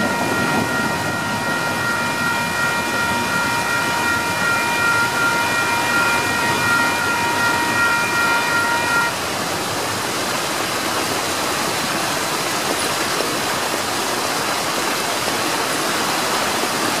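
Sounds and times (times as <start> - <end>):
level-crossing bell ringing: 0.0 - 9.1
water fountains splashing: 0.0 - 17.0.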